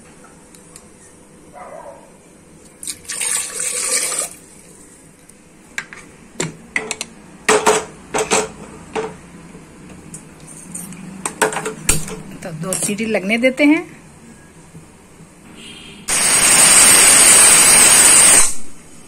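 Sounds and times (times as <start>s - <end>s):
water pouring into a pot: 2.8s - 4.5s.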